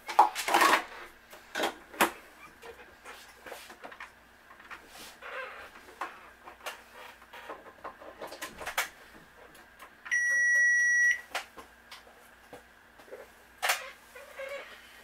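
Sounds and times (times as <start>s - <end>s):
coffee maker electronic beep: 10.1s - 11.2s.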